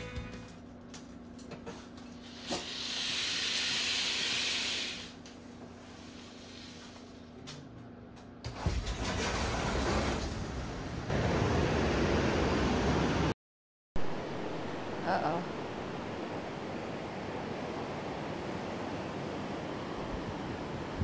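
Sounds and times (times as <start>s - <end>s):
sliding glass door opening: 8.5s - 11.0s
wind and surf rumble: 14.0s - 21.0s.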